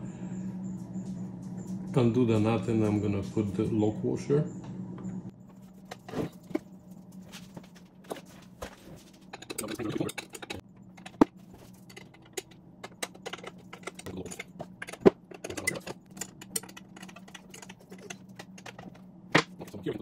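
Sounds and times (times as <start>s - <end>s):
metal clicks and clinks: 11.8s - 18.9s.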